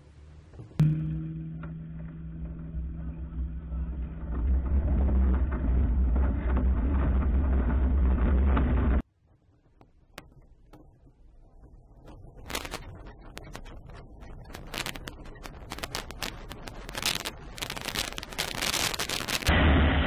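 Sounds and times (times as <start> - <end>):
low rumble: 0.4 - 9.0.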